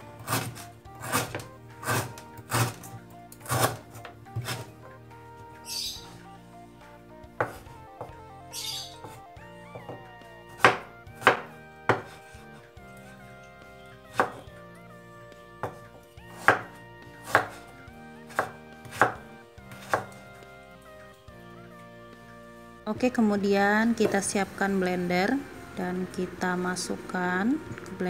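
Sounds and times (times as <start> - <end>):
soft background music: 0.0 - 28.0
knife chopping on wooden board: 0.2 - 4.7, 7.4 - 8.2, 8.9 - 9.2, 9.8 - 13.2, 14.1 - 14.6, 15.6 - 17.7, 18.3 - 20.2.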